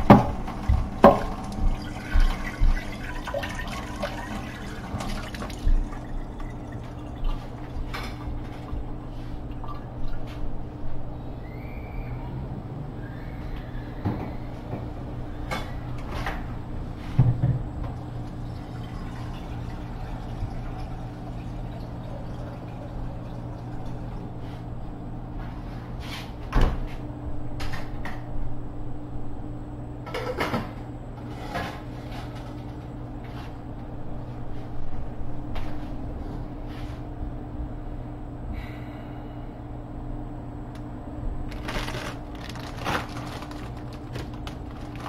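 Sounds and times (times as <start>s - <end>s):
steady low hum: 0.0s - 45.0s.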